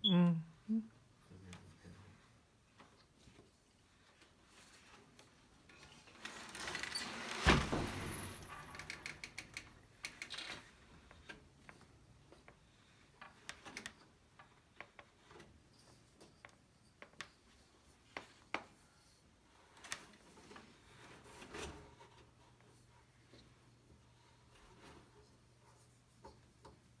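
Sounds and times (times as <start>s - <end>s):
loom clicks and taps: 8.7s - 18.8s.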